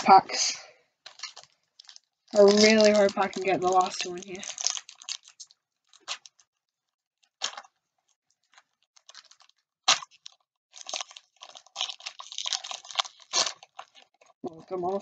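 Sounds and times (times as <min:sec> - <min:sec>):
wrapper tearing and crinkling: 0:01.0 - 0:15.0.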